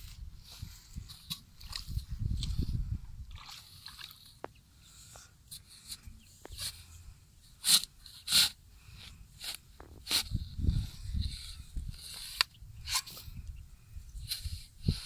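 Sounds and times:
spade scraping wet clay: 7.6 - 13.4, 14.2 - 15.0.

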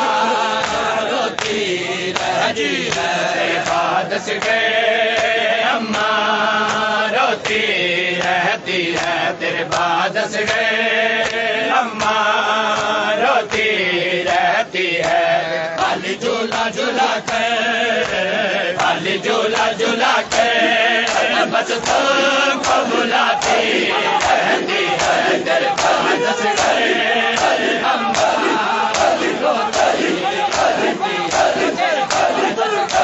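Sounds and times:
men chanting a lament: 0.0 - 33.0
hands slapping chests: 21.1 - 33.0.

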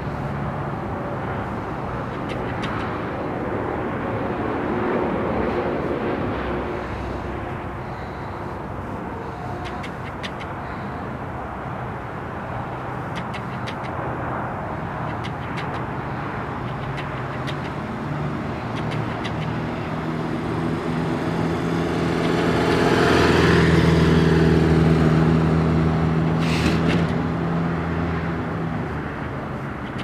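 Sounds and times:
motorcycle engine passing by: 19.5 - 26.0.

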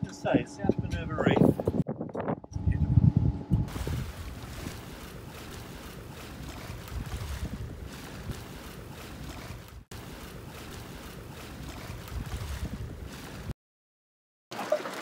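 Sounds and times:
wind buffeting microphone: 0.2 - 9.9, 11.3 - 13.5
gusty low rumbles: 0.4 - 5.6, 6.3 - 8.5, 11.6 - 13.1
sea water rushing along hull: 3.7 - 13.5.

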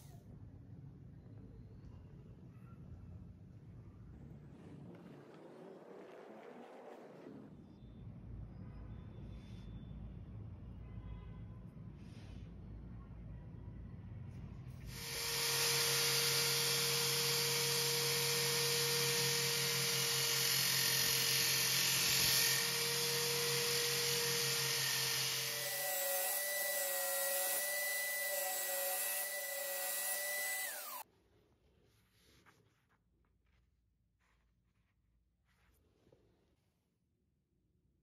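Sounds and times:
electric drill motor whine: 14.9 - 31.0
file grinding on abrasive disc: 14.9 - 31.0.

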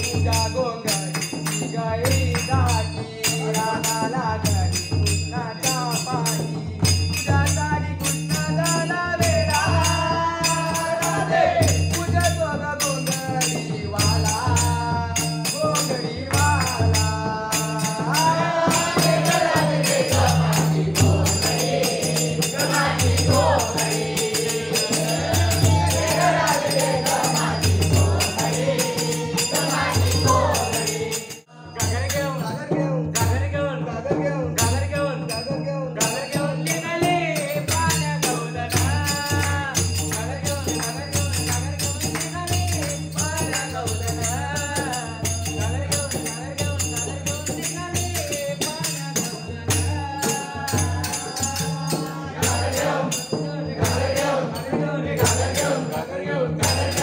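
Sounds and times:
barrel drum rhythm: 0.0 - 57.0
jingling hand percussion: 0.0 - 57.0
group singing devotional song: 8.1 - 12.4, 13.1 - 32.5, 36.0 - 57.0.

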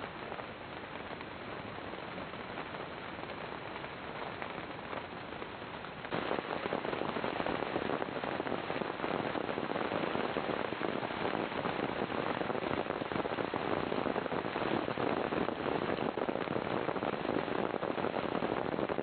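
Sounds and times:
rain pattering: 0.0 - 19.0.

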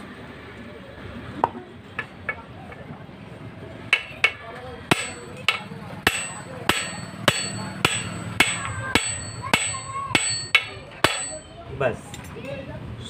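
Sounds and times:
hammer striking steel punch: 3.9 - 11.5.

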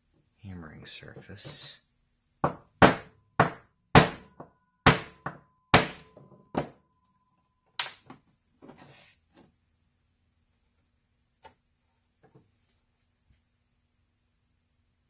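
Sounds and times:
hammer striking metal: 2.5 - 6.8.

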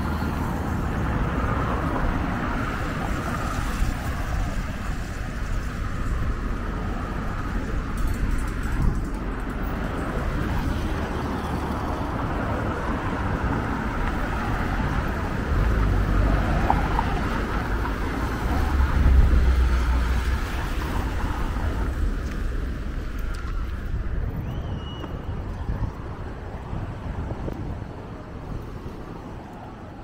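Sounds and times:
road traffic passing: 0.0 - 30.0
low rumble: 18.2 - 25.6.

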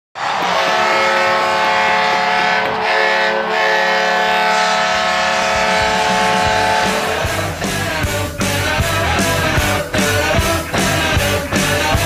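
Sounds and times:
goal horn blaring: 0.2 - 12.0.

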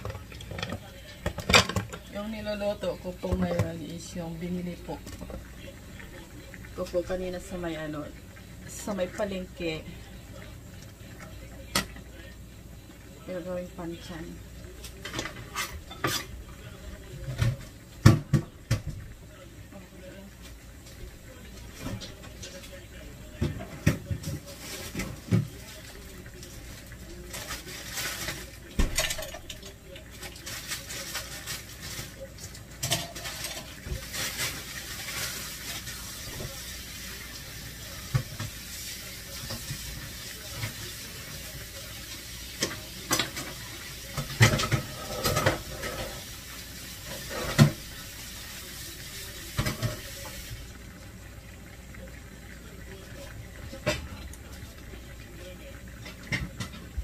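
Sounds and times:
dishes clinking and clattering: 0.0 - 2.1, 14.8 - 19.1, 27.3 - 36.7, 42.5 - 46.2, 47.1 - 47.8, 55.9 - 57.0.

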